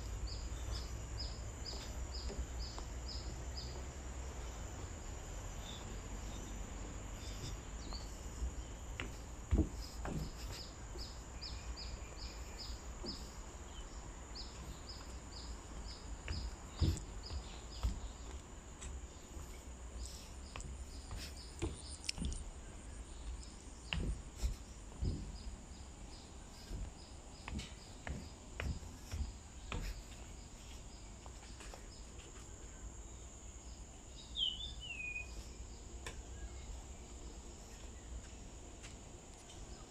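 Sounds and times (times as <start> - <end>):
insects droning: 0.0 - 39.9
bird calls: 34.2 - 37.0.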